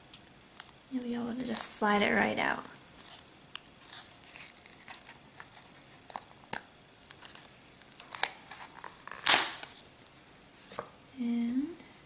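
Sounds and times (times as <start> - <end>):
plastic mold crinkling and clicking: 3.0 - 10.1.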